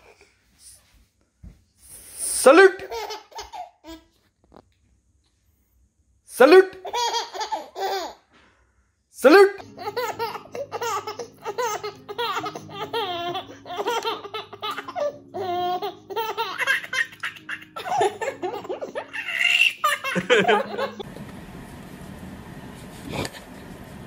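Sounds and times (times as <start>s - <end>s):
baby laughing: 2.6s - 4.1s, 6.7s - 8.2s, 9.4s - 21.0s
background music: 9.2s - 21.0s.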